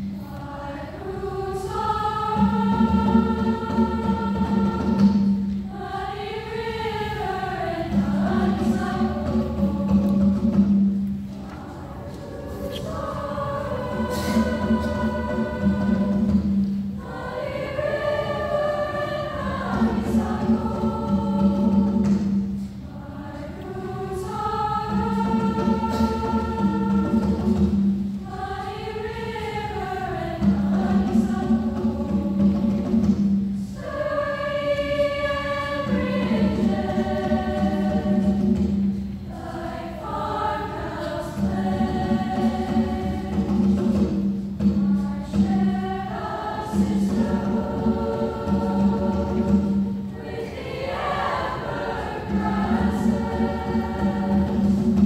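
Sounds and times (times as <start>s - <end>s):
women's choir singing: 0.0s - 55.0s.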